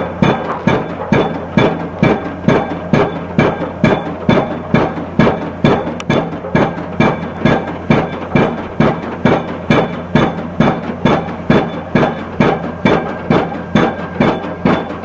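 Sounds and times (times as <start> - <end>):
pile driver hammer striking: 0.0 - 15.0.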